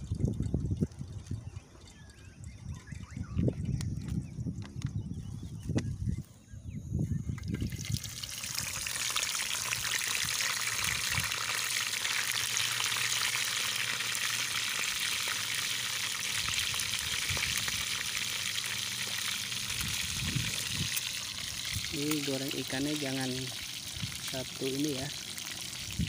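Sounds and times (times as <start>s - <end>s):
fish sizzling in hot oil: 7.6s - 26.0s.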